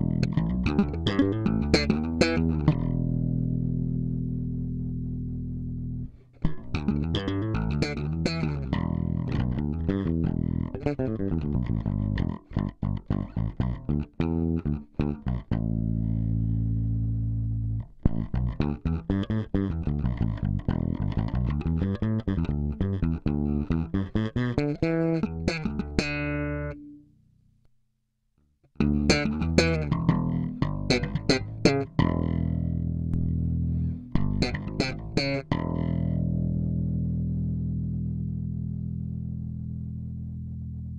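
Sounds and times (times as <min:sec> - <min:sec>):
electric bass playing: 0:00.0 - 0:27.2, 0:28.7 - 0:40.9.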